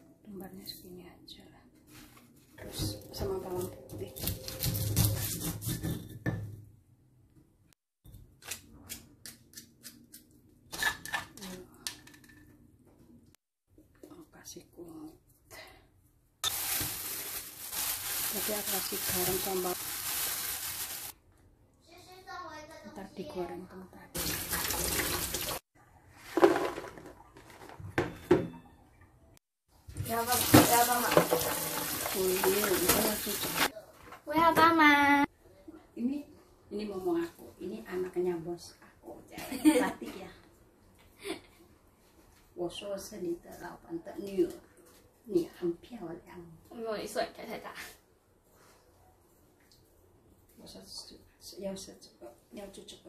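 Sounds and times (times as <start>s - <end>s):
tap water running into colander: 24.2s - 25.6s, 30.0s - 33.7s
colander clattering against sink: 30.4s - 33.6s.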